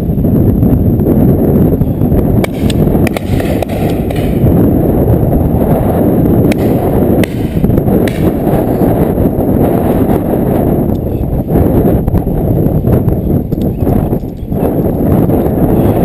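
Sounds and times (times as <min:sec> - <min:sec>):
wind buffeting microphone: 0:00.0 - 0:16.0
short sharp cracks: 0:02.4 - 0:04.5, 0:06.5 - 0:08.7.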